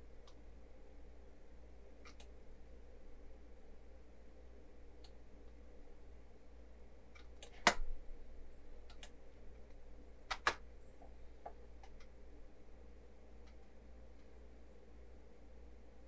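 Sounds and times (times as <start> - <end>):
low steady hum: 0.0 - 16.0
computer mouse clicks: 2.0 - 2.4, 7.1 - 7.8, 8.8 - 9.2, 10.3 - 12.2.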